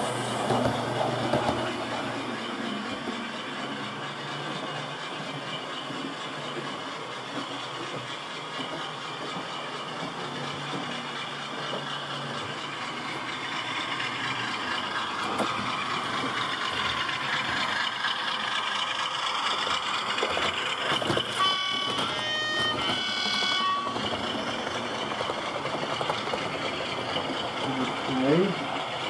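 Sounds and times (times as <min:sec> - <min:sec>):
model train humming: 0:00.0 - 0:29.0
train horn notes: 0:21.4 - 0:24.0.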